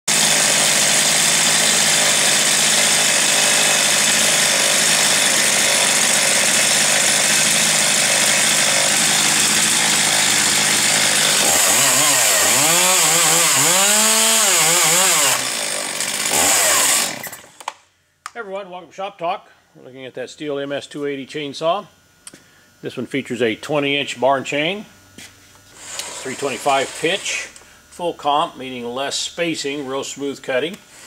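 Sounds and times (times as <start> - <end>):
chainsaw revving: 0.1 - 17.6, 25.8 - 27.5.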